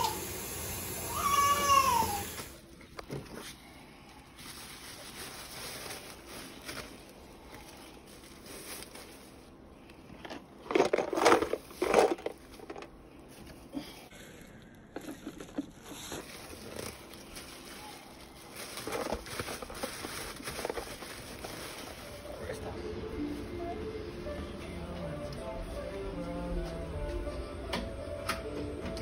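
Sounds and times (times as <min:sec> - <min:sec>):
plastic bags crinkling: 0:01.3 - 0:13.8, 0:14.4 - 0:22.7.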